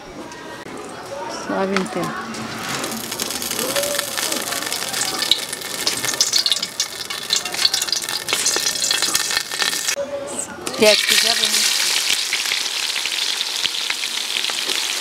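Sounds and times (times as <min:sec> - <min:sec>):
oil crackling and sizzling: 0:02.5 - 0:10.0, 0:10.8 - 0:15.0.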